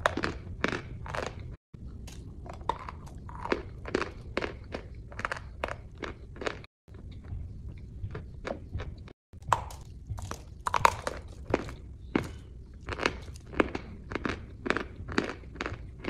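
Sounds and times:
person chewing crunchy food: 0.0 - 16.0.

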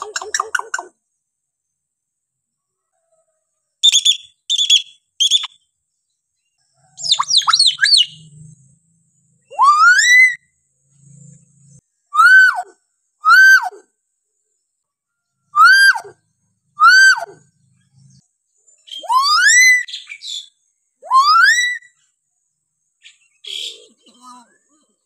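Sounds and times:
myna bird calling: 0.0 - 1.0, 6.8 - 8.3, 23.0 - 24.3.

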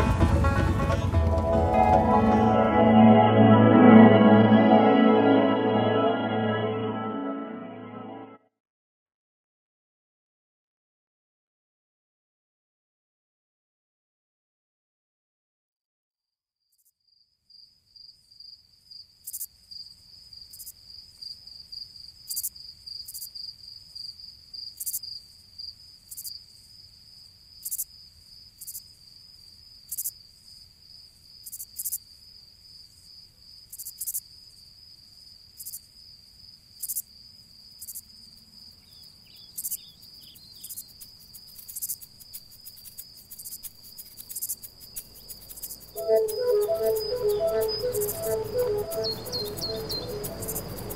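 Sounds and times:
brief lower chirps: 1.4 - 8.4, 46.0 - 50.9
high insect trill: 36.8 - 50.9.

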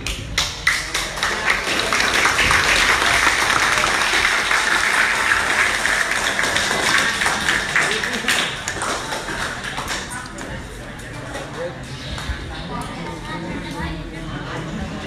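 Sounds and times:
crowd applauding: 0.0 - 10.4.

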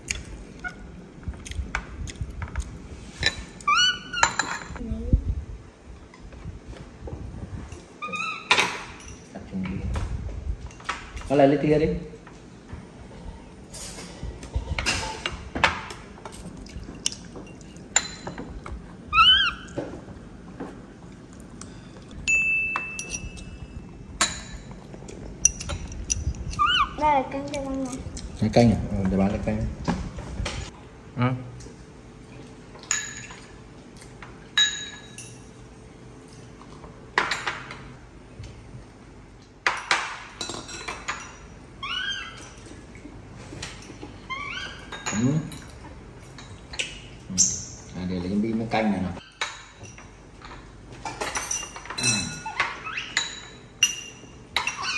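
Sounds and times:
spoons clinking on ceramic bowls: 22.2 - 23.6, 34.6 - 35.6, 51.1 - 54.9.

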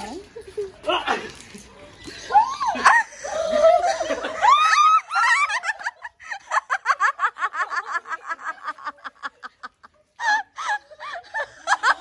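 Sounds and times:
woman laughing: 2.6 - 12.0.

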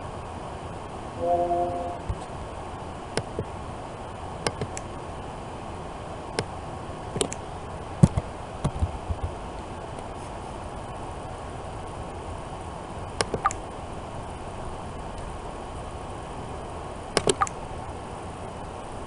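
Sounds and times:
steady background hiss: 0.0 - 19.0
mouse clicks and keyboard taps: 17.2 - 17.6.

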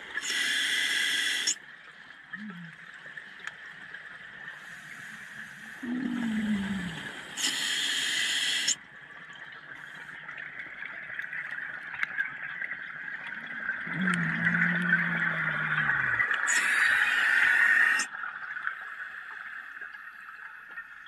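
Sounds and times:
steady hiss: 0.0 - 1.6, 7.0 - 8.8, 16.4 - 18.1
diver exhaling bubbles: 5.8 - 7.7, 13.8 - 18.1.

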